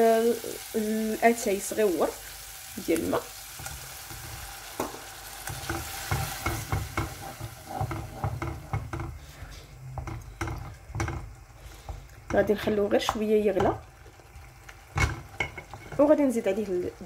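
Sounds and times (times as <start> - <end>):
sauce sizzling and hissing: 0.0 - 9.9, 10.6 - 17.0
wooden spoon scraping a pot: 5.5 - 13.8.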